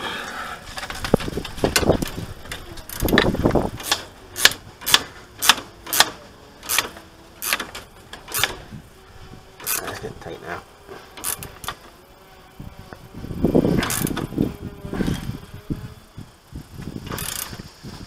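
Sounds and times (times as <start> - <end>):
spanner ratcheting clicks: 1.0 - 8.7, 9.6 - 10.2, 11.1 - 11.9, 13.7 - 14.3, 16.7 - 17.7.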